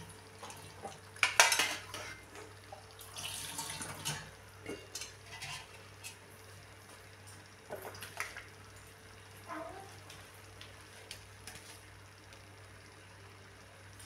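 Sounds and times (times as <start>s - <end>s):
steel spoon scraping colander: 5.2s - 5.8s.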